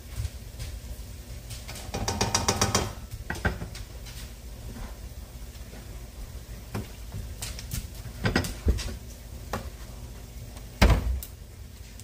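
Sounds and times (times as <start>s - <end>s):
containers knocking and clicking: 1.8s - 3.8s.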